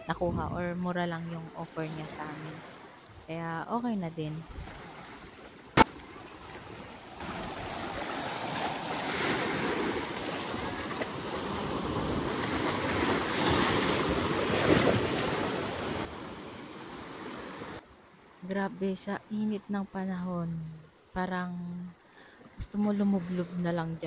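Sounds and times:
wind buffeting microphone: 0.0s - 0.8s
sea surf washing onto beach: 5.2s - 17.8s.

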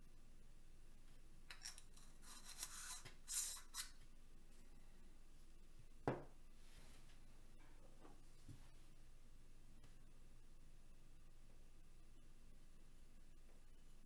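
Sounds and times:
knock on wooden tabletop: 6.0s - 6.3s.

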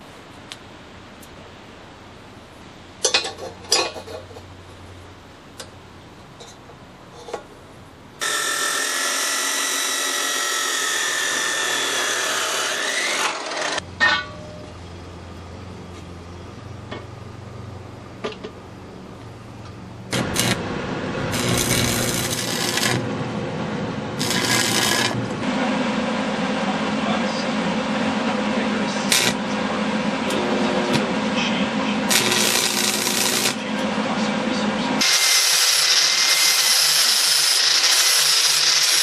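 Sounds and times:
chop saw cutting steel: 8.2s - 13.8s, 20.1s - 20.6s, 21.3s - 23.1s, 24.2s - 25.3s, 29.1s - 29.4s, 32.1s - 33.6s, 35.0s - 39.0s
scraping tool noise: 8.2s - 14.2s, 20.1s - 23.1s, 24.2s - 25.4s, 32.1s - 33.7s
low hum: 13.8s - 35.0s.

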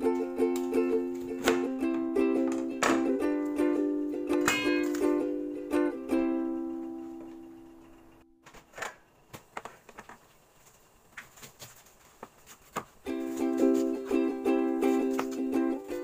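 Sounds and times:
ukulele music: 0.0s - 8.4s, 12.8s - 16.0s.

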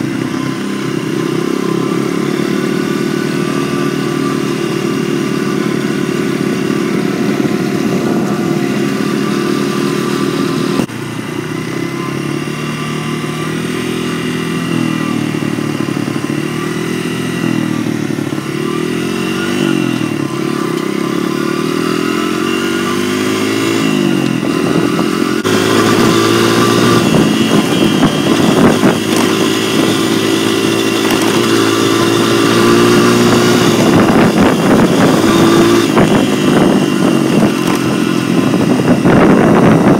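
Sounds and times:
dirt bike engine accelerating: 0.0s - 39.9s
wind rumbling on microphone: 23.8s - 39.9s.

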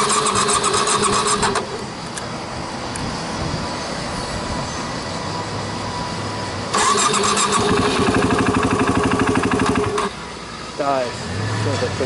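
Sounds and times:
electric starter cranking engine: 0.0s - 1.8s, 6.7s - 10.2s.

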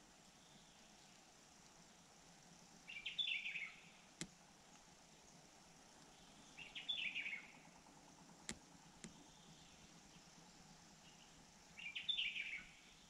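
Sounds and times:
songbird chattering: 6.1s - 7.6s
sharp clicks: 8.4s - 9.2s.

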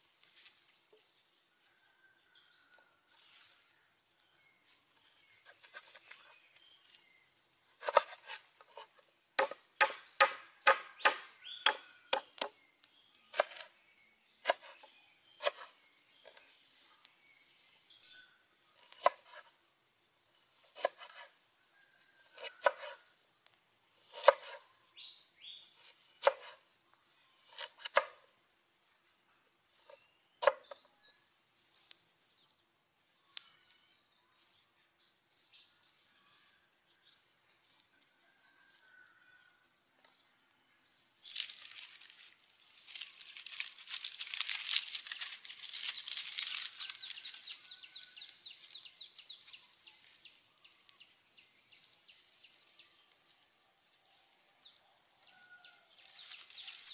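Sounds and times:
knife chopping on wooden board: 7.8s - 8.4s, 9.4s - 12.5s.

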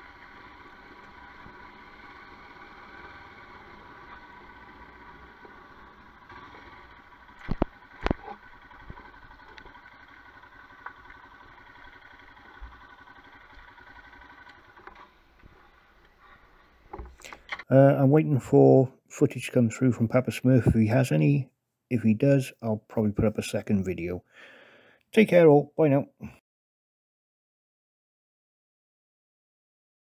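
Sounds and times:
motorcycle running on gravel: 0.0s - 16.8s.

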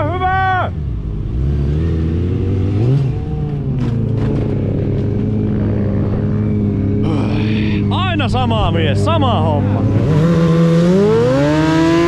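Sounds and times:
motorcycle engine revving and idling: 0.0s - 12.0s
sharp scraping clatters: 3.4s - 5.4s.

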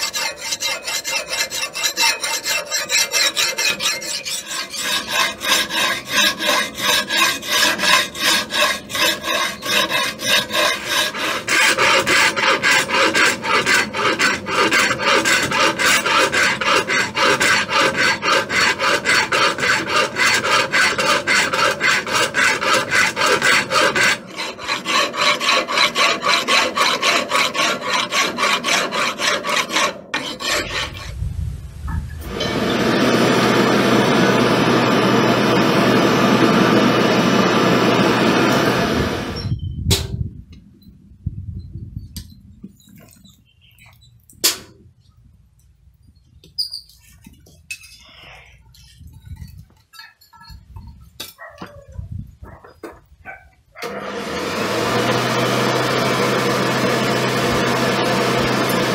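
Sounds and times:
hand file rasping on steel: 0.0s - 31.2s
bird chirping: 43.1s - 44.2s.

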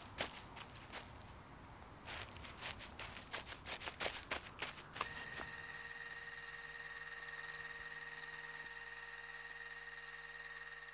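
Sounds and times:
footsteps: 0.0s - 1.4s, 2.0s - 5.5s
motor hum with high whine: 3.0s - 10.9s.

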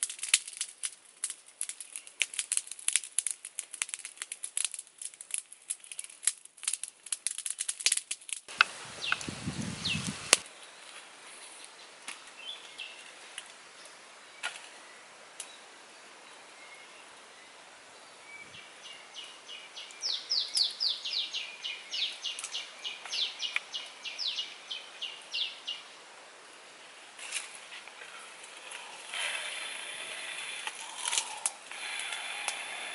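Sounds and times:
sharp crackling clicks: 0.0s - 9.3s, 27.3s - 32.9s.

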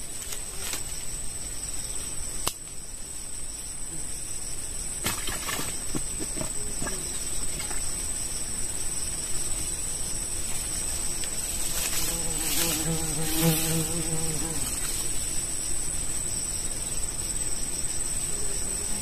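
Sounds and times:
insects droning: 0.0s - 19.0s.

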